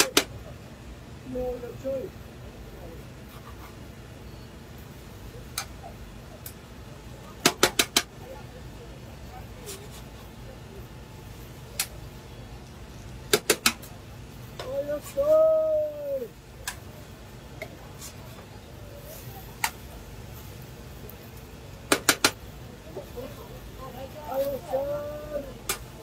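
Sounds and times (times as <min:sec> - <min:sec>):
steady background hum: 0:00.0 - 0:26.0
metal spatulas clacking on griddle: 0:07.4 - 0:08.1, 0:13.3 - 0:13.9, 0:21.9 - 0:22.4
person calling out: 0:14.6 - 0:16.4.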